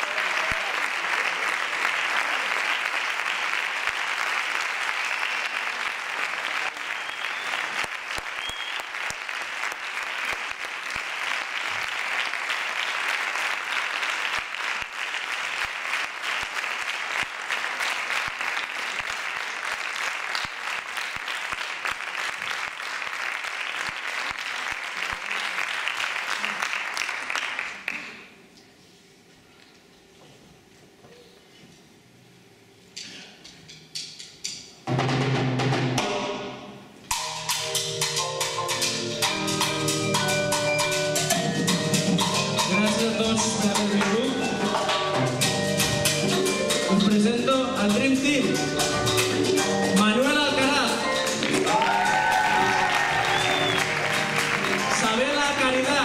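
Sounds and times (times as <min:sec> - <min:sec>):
applause: 0:00.0 - 0:28.4, 0:51.4 - 0:56.0.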